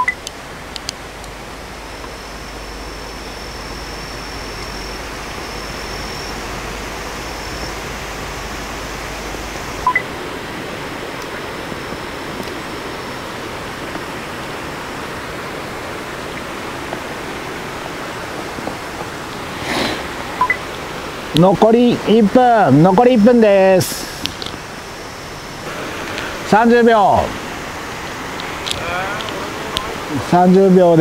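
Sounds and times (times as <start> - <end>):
short electronic beeps: 0.0 - 0.2, 9.8 - 10.1, 20.4 - 20.6
faint high whine: 0.0 - 31.0
steady rushing noise: 0.0 - 31.0.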